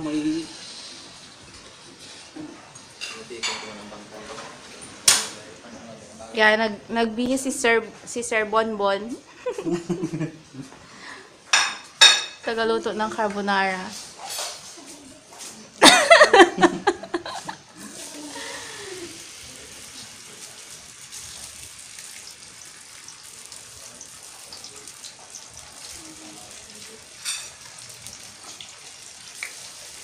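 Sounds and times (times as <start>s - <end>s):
food sizzling in a pan: 0.0s - 5.6s, 11.4s - 16.4s, 17.2s - 30.0s.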